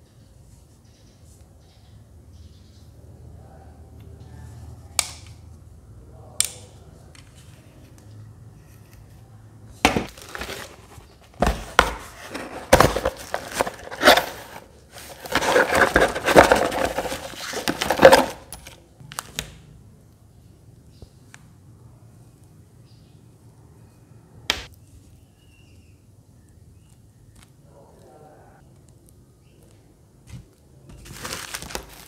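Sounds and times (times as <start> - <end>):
cardboard scraping: 9.8 - 18.8, 30.9 - 32.0
knocks on cardboard box: 9.9 - 10.6
plastic packaging crinkling: 9.9 - 19.4, 30.9 - 32.0.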